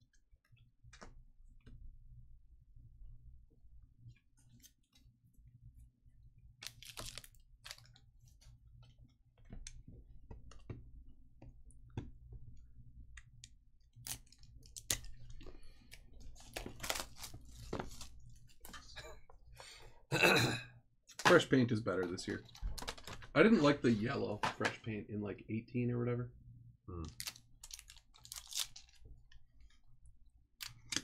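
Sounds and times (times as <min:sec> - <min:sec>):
foil wrappers crinkling: 0:06.6 - 0:08.0, 0:16.3 - 0:18.2, 0:27.2 - 0:29.0.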